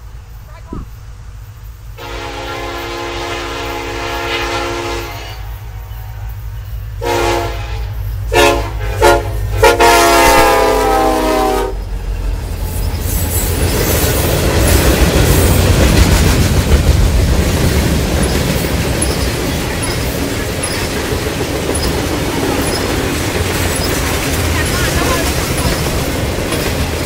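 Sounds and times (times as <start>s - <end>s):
locomotive engine drone: 0.0s - 27.0s
locomotive air horn: 2.0s - 6.2s, 7.0s - 11.9s
freight cars rumbling by: 11.6s - 27.0s.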